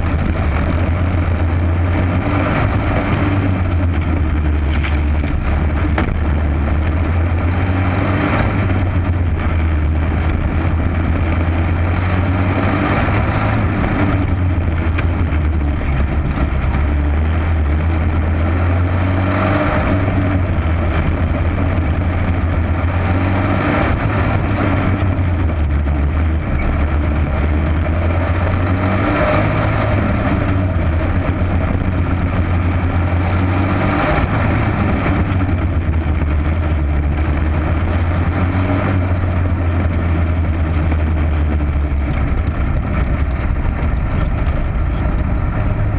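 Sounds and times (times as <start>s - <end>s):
racing kart engine: 0.0s - 45.9s.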